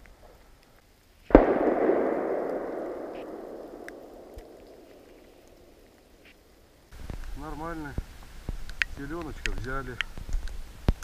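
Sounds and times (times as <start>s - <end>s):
gunshot echoing: 1.3s - 6.2s.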